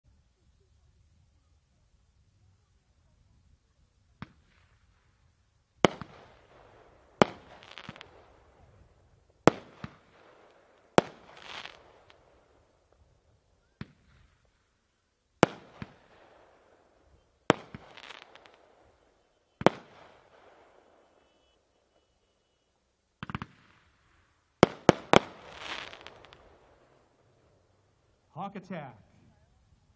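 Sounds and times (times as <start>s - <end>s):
firework crackle: 0.6s - 28.8s
small firework pops: 4.1s - 5.0s, 5.8s - 14.8s, 15.4s - 27.1s
firework bangs: 4.2s - 14.8s, 15.4s - 28.8s.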